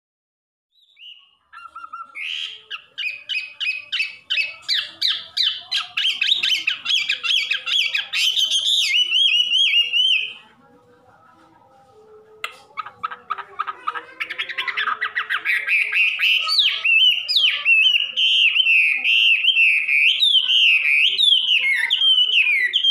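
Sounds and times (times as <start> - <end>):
bird singing warble: 0.8 - 10.4, 14.3 - 22.9.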